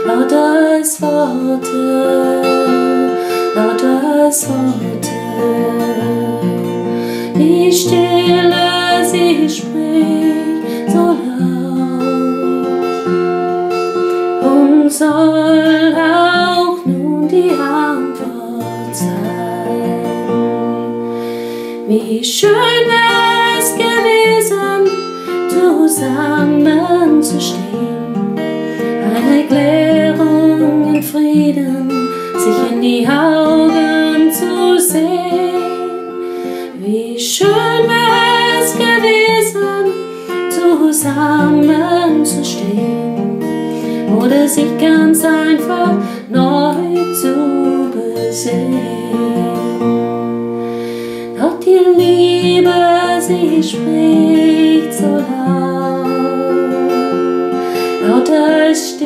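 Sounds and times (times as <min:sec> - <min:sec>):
woman singing: 0:00.0 - 0:21.0, 0:21.7 - 0:50.4, 0:51.2 - 0:59.0
acoustic guitar strumming: 0:00.0 - 0:59.0.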